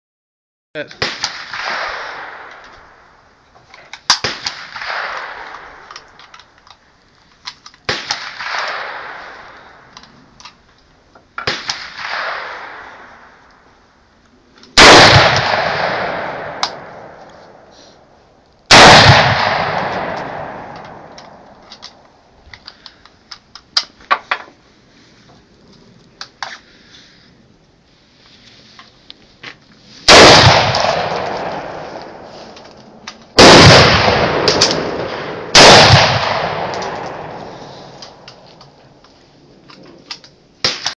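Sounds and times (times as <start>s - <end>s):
rifle shots echoing: 1.0s - 3.2s, 4.0s - 6.2s, 7.9s - 9.9s, 11.4s - 13.4s, 14.8s - 17.7s, 18.7s - 22.0s, 30.1s - 38.8s, 40.6s - 40.9s.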